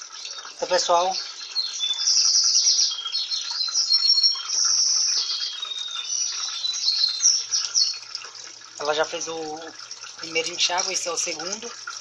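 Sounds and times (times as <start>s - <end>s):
water filling washing machine: 0.0s - 1.9s, 5.2s - 12.0s
songbird singing trills: 0.0s - 8.2s.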